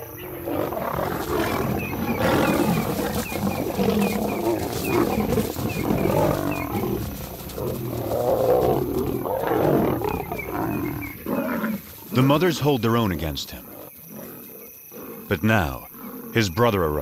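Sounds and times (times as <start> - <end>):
lions roaring and fighting: 0.0 - 17.0.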